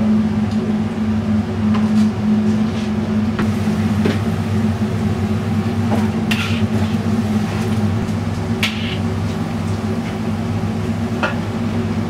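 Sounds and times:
exhaust hood humming: 0:03.4 - 0:12.0.

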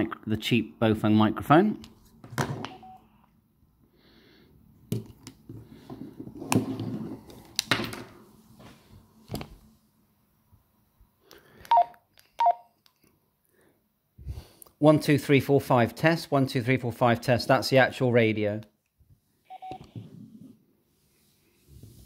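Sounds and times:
short electronic beeps: 0:11.7 - 0:12.6.

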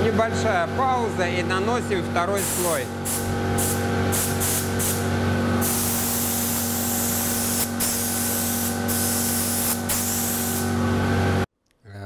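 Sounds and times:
steady low hum: 0:00.0 - 0:12.0
spray gun hissing: 0:02.4 - 0:10.7.

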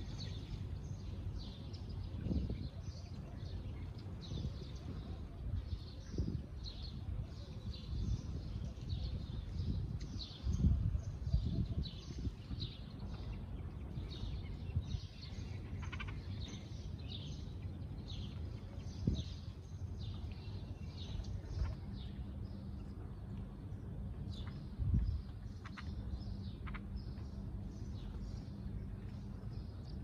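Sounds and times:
low background rumble: 0:00.0 - 0:30.0
sparrows chirping: 0:00.0 - 0:30.0.

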